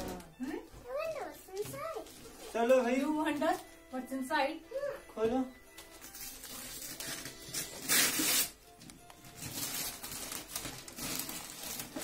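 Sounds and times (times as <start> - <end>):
background music: 0.0 - 12.0
wrapping paper rustling and tearing: 1.8 - 3.7, 5.9 - 8.6, 9.2 - 12.0.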